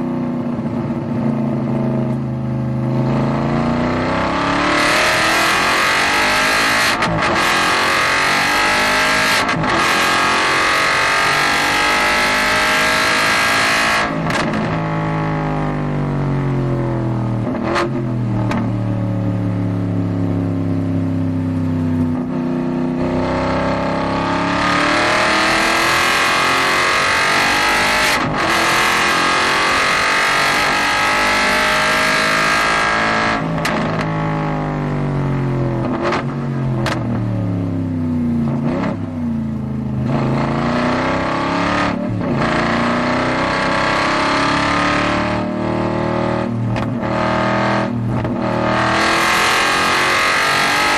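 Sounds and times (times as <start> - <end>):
race car engine revving: 2.9 - 14.9, 23.0 - 34.1, 35.8 - 37.2, 38.4 - 39.2, 40.0 - 50.9
engine blips on downshifts: 35.8 - 37.8, 40.0 - 50.9.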